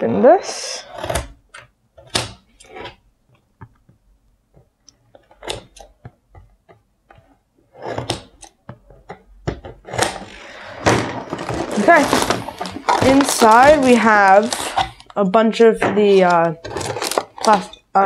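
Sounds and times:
cardboard clicks and rustles: 4.6 - 15.2, 16.0 - 17.9
cardboard flap scraping: 9.7 - 15.1, 16.0 - 17.8.

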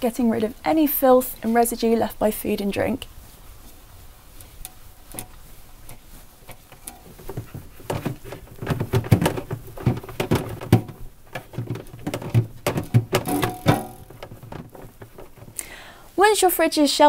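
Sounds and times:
cloth rubbing plastic drawer: 6.3 - 15.6.

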